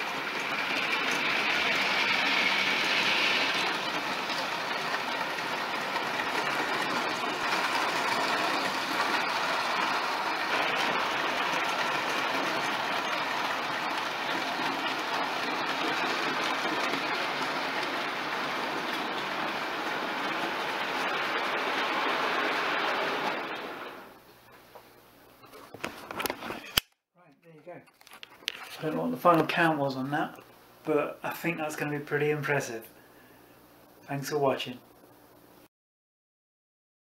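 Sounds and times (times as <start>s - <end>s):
model train wagons rattling: 0.0s - 24.1s.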